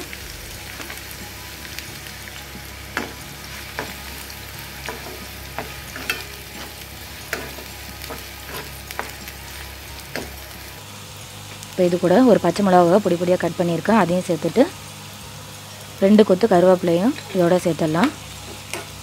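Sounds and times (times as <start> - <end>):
onions sizzling in oil: 0.0 - 19.0
spoon scraping a pan: 4.8 - 9.3.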